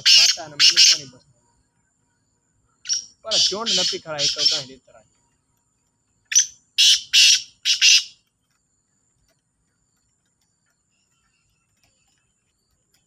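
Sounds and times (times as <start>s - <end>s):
francolin rasping call: 0.0s - 1.2s, 2.7s - 4.9s, 6.2s - 8.2s.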